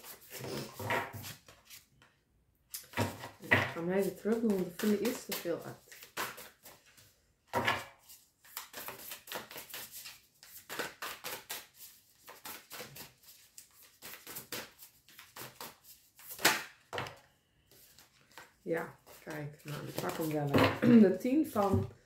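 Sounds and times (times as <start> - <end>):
cards being shuffled: 3.8 - 7.0, 8.0 - 16.6, 17.7 - 20.5
cards slapping: 8.5 - 13.1, 13.7 - 16.8.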